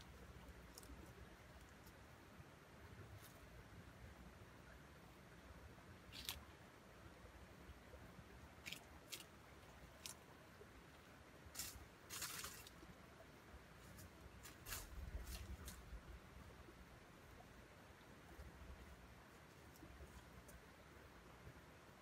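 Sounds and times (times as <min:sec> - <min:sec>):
dry leaves rustling: 0:11.5 - 0:12.9, 0:13.8 - 0:16.0.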